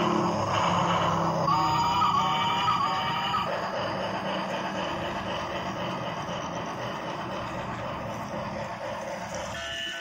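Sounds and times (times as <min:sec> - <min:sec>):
toy trains whirring and rattling: 0:00.0 - 0:10.0.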